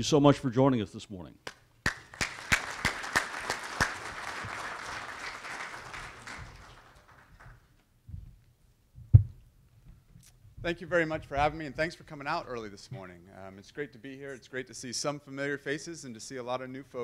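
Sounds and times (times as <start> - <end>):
audience applauding: 1.8 - 7.7.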